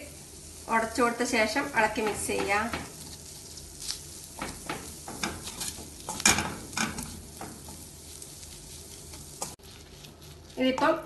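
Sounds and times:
faint sizzle: 0.0 - 11.0
wooden spatula scraping metal pan: 1.9 - 9.6.

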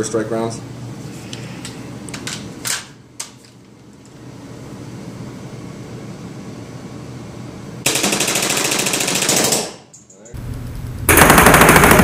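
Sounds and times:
paintball marker firing rapidly: 7.9 - 9.8, 11.1 - 12.0.

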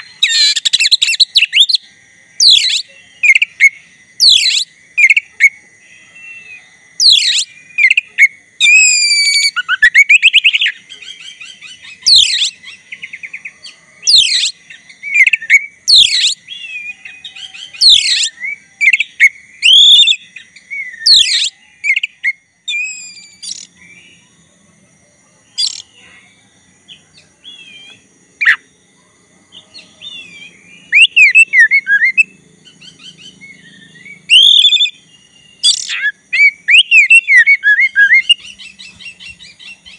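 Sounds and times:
bird singing whistles and warbles: 0.0 - 24.4, 25.5 - 26.0, 26.9 - 28.7, 29.5 - 39.9.

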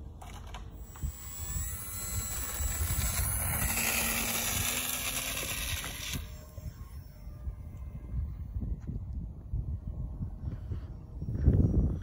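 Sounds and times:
wind rumble on microphone: 0.0 - 12.0
model plane motor whirring: 0.1 - 8.6.

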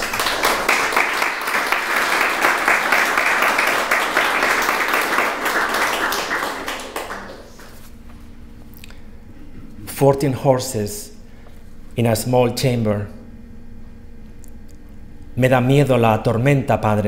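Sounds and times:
audience applauding: 0.0 - 8.0.

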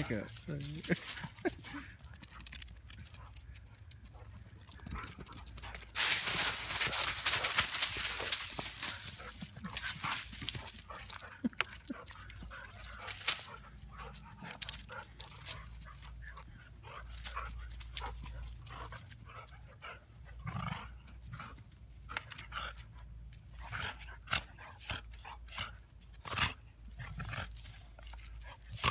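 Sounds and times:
dogs scuffling: 0.0 - 19.2
dogs breathing: 0.0 - 28.9.

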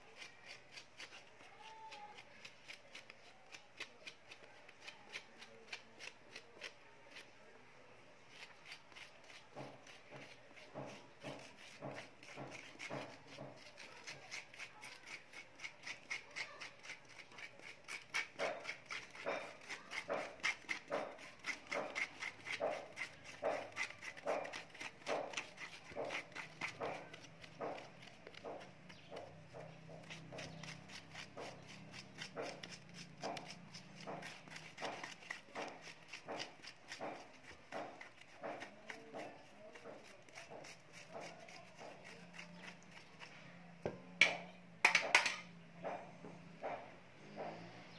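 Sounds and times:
metal spoon scraping banana: 0.0 - 7.5, 8.2 - 43.6.

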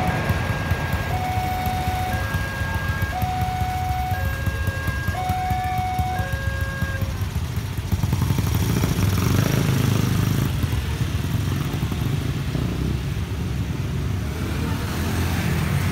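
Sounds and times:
motorcycle engines pulling away: 0.0 - 15.9.

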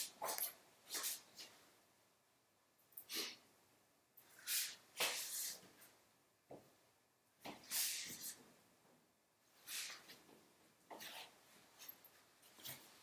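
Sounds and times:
sandalled footsteps on tile: 0.0 - 1.5, 4.5 - 5.8.

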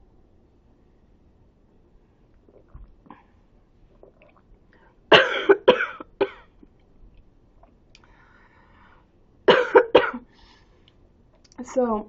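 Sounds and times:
woman coughing: 5.1 - 6.5, 9.5 - 10.3.

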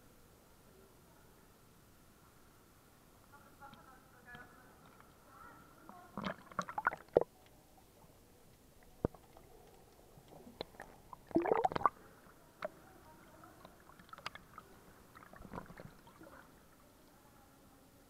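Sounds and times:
water splashing and gurgling: 6.2 - 7.3, 10.4 - 12.0, 13.7 - 16.6.

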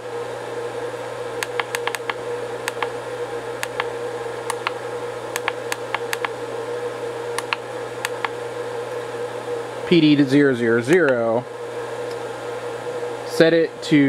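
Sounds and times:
steady hum: 0.0 - 14.0
push buttons clicking: 1.4 - 2.9, 3.6 - 3.9, 4.5 - 6.4, 7.4 - 8.4.

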